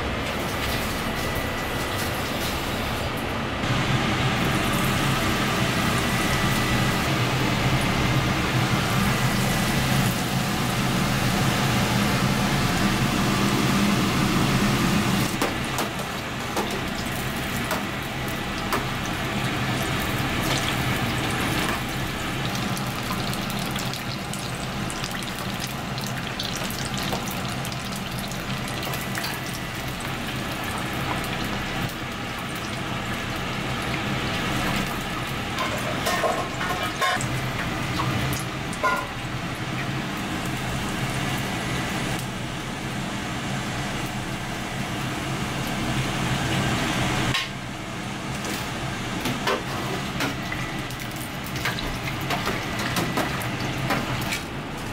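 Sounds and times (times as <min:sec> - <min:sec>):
tempura sizzling in deep fryer: 0:00.0 - 0:54.9.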